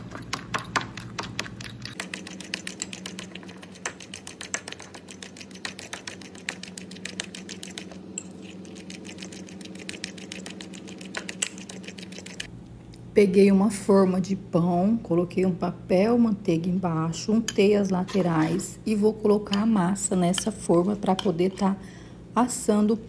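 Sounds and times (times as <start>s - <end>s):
metal spoon stirring batter: 0.0s - 12.5s.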